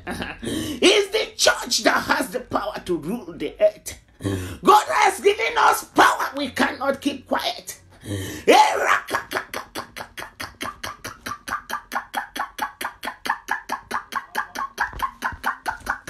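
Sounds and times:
woman praying: 0:00.5 - 0:16.0
woman crying out: 0:08.4 - 0:09.7.

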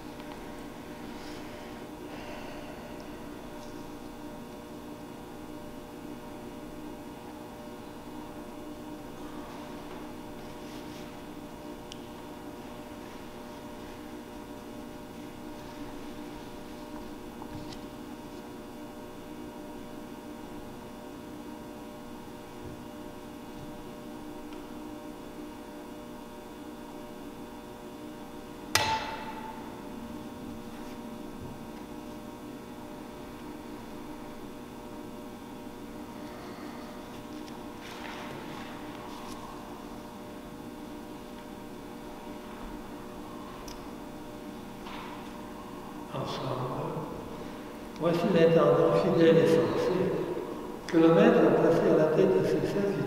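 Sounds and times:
steady electrical hum: 0:00.0 - 0:53.0.

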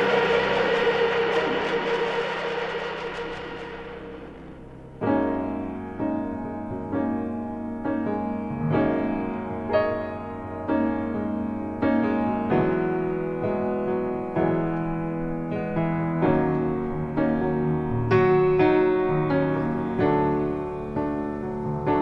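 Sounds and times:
wash of noise: 0:00.0 - 0:05.0
piano playing chords: 0:00.0 - 0:22.0.

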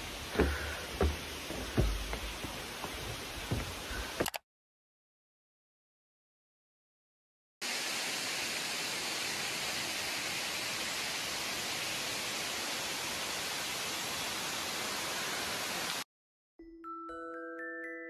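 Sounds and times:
waterfall rushing: 0:00.0 - 0:04.2, 0:07.6 - 0:16.0.

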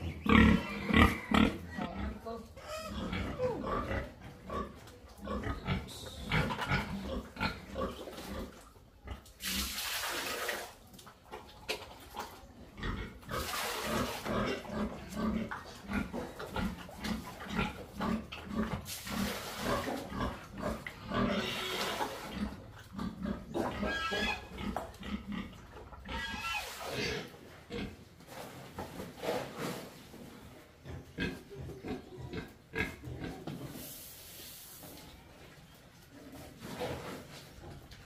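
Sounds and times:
pigs grunting: 0:00.0 - 0:09.3, 0:12.2 - 0:28.0, 0:30.8 - 0:33.7
bucket being emptied: 0:09.4 - 0:10.9, 0:13.4 - 0:14.4, 0:18.8 - 0:20.2.

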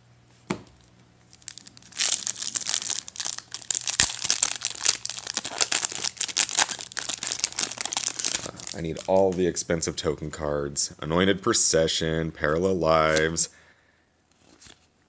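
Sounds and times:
foil wrapper crinkling and tearing: 0:01.3 - 0:09.4.

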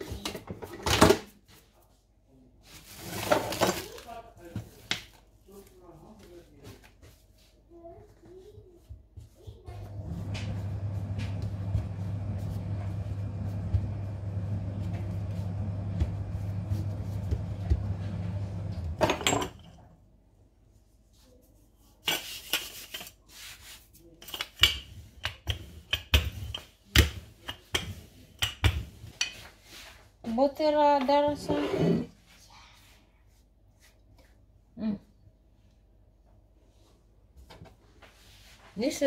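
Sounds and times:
rolling pin rolling dough: 0:08.8 - 0:19.1, 0:22.1 - 0:30.0
steady low hum: 0:09.8 - 0:19.0.

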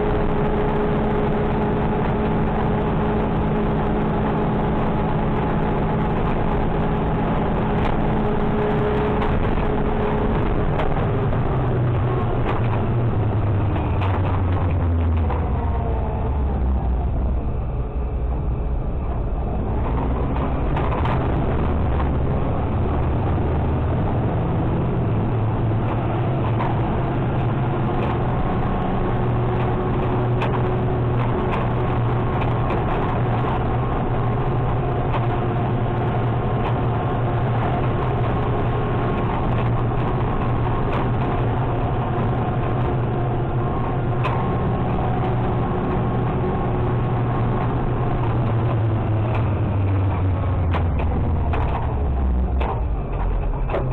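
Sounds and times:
garbage truck engine droning: 0:00.0 - 0:53.9
clicks and rattles from truck body: 0:47.6 - 0:53.9.

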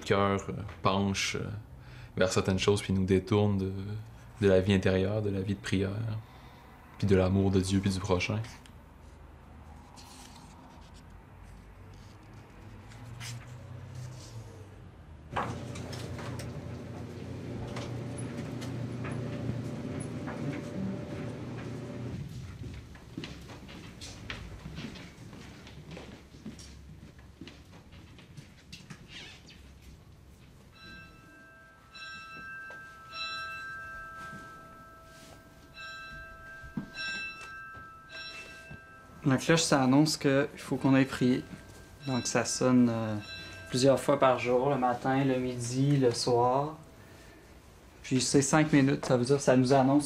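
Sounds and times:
steady low hum: 0:15.3 - 0:23.0
bell ringing: 0:15.4 - 0:22.2, 0:30.7 - 0:47.5.

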